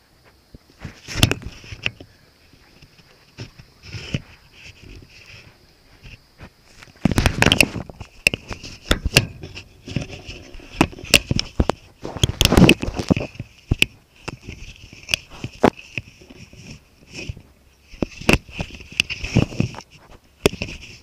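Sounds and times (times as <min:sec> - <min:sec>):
sharp clicks and knocks: 0:00.8 - 0:02.1, 0:06.0 - 0:21.0
fur rubbing against microphone: 0:14.4 - 0:21.0.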